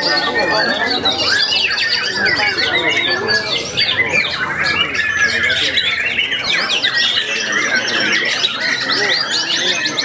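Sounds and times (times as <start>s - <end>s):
chorus of songbirds: 0.0s - 10.0s
songbird whistling and chattering: 0.0s - 10.0s.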